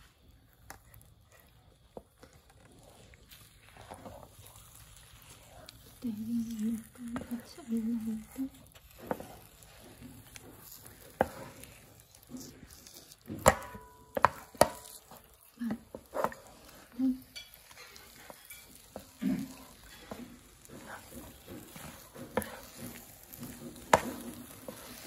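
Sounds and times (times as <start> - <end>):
dough squelching: 0.0 - 25.0
wooden spatula knocking on pan: 13.2 - 15.0, 18.9 - 25.0.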